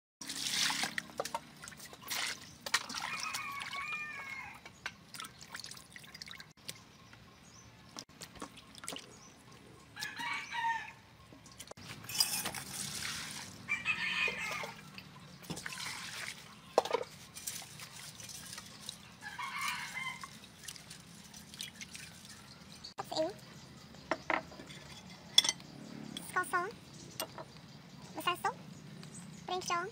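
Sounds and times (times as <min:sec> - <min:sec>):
water splashing in steel bowl: 0:00.2 - 0:06.5, 0:11.5 - 0:22.8
rooster crowing: 0:02.9 - 0:04.6, 0:10.0 - 0:11.1, 0:13.7 - 0:15.0, 0:19.2 - 0:20.3.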